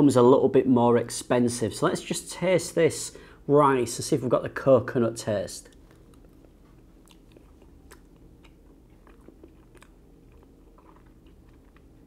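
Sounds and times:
low room hum: 0:00.0 - 0:12.0
man chewing: 0:05.6 - 0:12.0.

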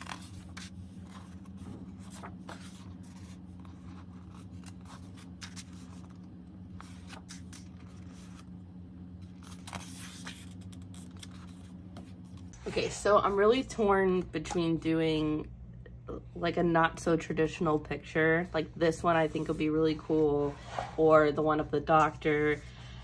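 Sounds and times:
book pages turning: 0:00.0 - 0:12.9
steady low hum: 0:00.0 - 0:23.0.

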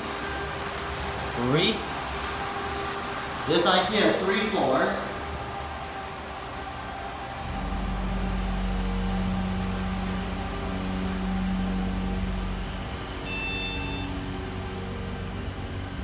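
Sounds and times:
elevator drive humming: 0:04.6 - 0:16.0
high electronic chime: 0:07.8 - 0:15.3.

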